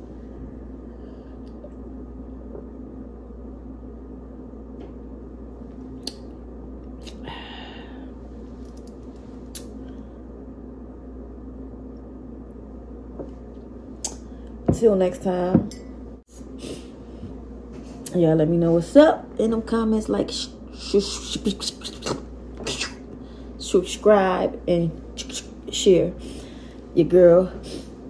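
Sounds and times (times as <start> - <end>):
low room hum: 0.0 - 28.0
breathy exhale: 7.2 - 8.2.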